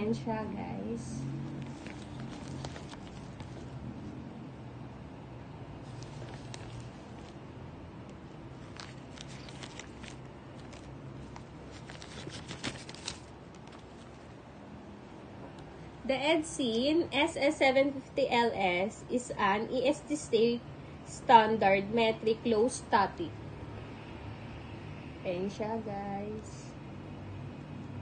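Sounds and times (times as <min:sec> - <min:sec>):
steady low hum: 0:00.0 - 0:28.0
plastic bag crinkling: 0:01.6 - 0:03.7, 0:05.9 - 0:07.4, 0:08.6 - 0:14.2.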